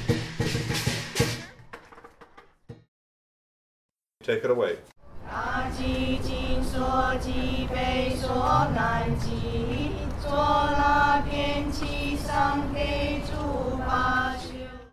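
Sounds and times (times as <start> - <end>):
voices singing or chanting: 5.1 - 14.9.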